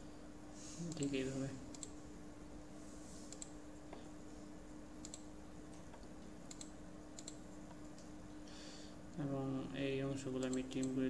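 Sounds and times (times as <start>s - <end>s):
faint steady hum: 0.0s - 11.0s
computer mouse clicks: 1.7s - 2.0s, 3.3s - 4.1s, 5.0s - 8.1s, 10.4s - 11.0s.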